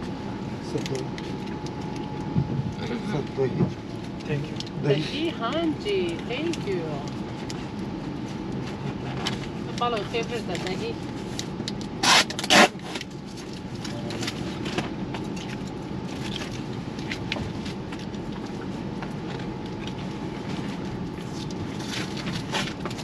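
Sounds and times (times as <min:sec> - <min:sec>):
train carriage rumble: 0:00.0 - 0:15.2.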